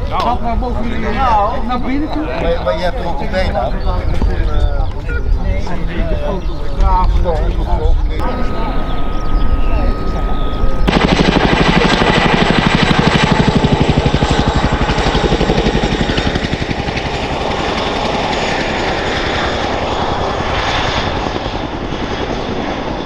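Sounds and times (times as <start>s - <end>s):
turbine whine: 0.0s - 23.0s
helicopter rotor blade chop: 10.0s - 23.0s.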